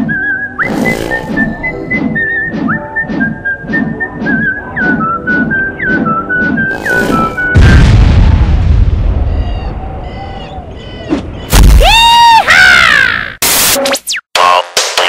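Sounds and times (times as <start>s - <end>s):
whistled tune: 0.0s - 7.6s
cartoon explosion boom: 6.8s - 9.8s.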